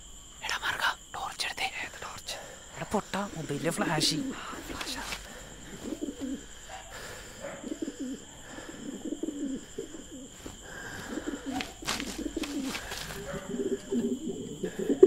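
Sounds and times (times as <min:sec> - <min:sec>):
pigeon cooing: 0:03.9 - 0:15.0.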